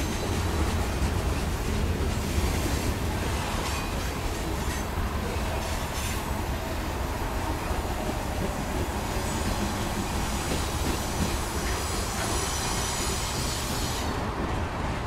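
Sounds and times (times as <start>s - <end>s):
freight train wheels rumbling: 0.0s - 15.0s
high wheel squeal: 9.3s - 14.2s.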